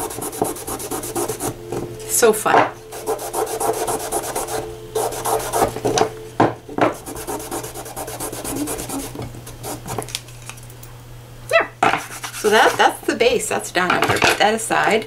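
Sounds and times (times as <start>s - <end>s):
damp rag rubbing wood: 0.0s - 1.6s, 2.9s - 5.8s, 6.9s - 9.9s.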